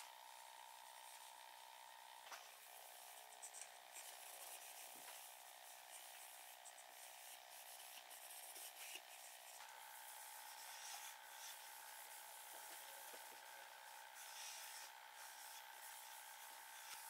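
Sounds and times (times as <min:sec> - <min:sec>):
cloth rubbing on wood: 0:03.9 - 0:17.0.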